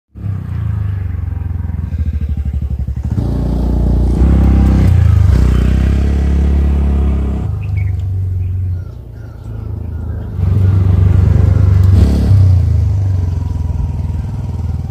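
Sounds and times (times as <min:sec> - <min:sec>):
motorcycle and scooter engines passing: 0:00.2 - 0:14.9.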